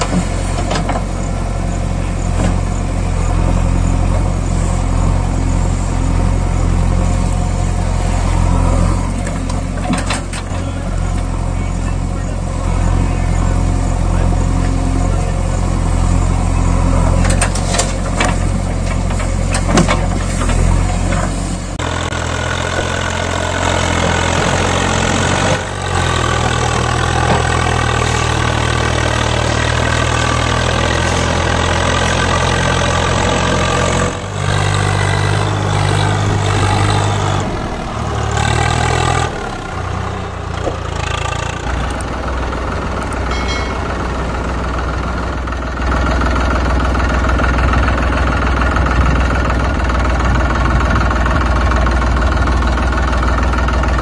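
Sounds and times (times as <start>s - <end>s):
tractor engine running: 0.0s - 54.0s.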